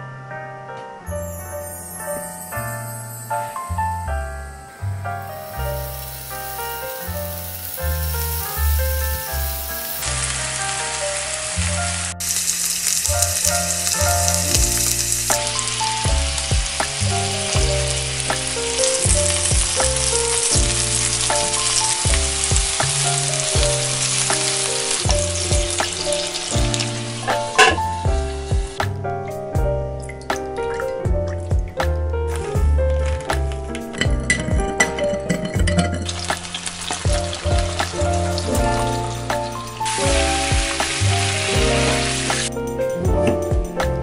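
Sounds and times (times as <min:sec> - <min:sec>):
background music with bass: 0:00.0 - 0:12.2, 0:13.1 - 0:44.0
food sizzling in a pan: 0:05.1 - 0:28.9, 0:32.4 - 0:42.6.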